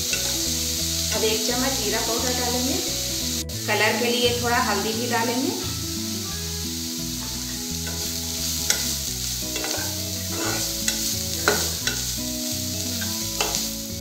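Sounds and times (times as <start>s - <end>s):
metal spatula scraping pan: 0.0s - 0.5s, 7.8s - 12.2s, 12.9s - 13.7s
vegetables sizzling: 0.0s - 14.0s
spatula clicking on pan: 0.1s - 0.5s, 7.8s - 12.1s, 13.0s - 13.7s.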